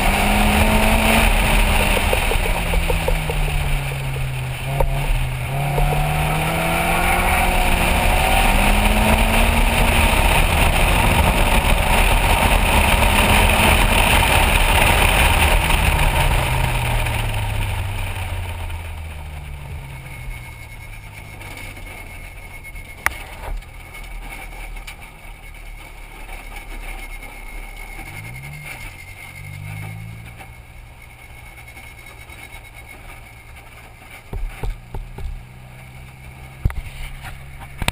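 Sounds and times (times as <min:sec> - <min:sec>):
race car engine running: 0:00.0 - 0:37.9
throttle blip: 0:01.7 - 0:03.6, 0:05.6 - 0:06.5.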